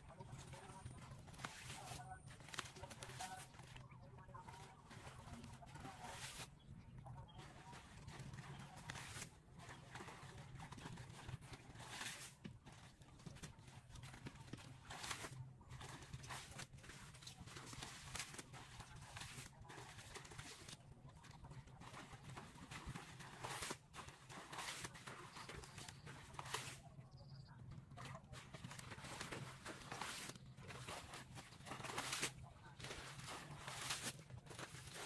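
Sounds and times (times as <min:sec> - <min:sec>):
splashing in muddy water: 0:07.4 - 0:26.9, 0:27.8 - 0:35.0.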